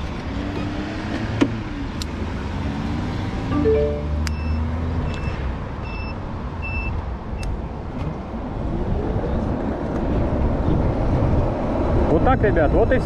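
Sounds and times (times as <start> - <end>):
wind and road noise: 0.0 - 13.0
short high electronic beeps: 3.5 - 5.4.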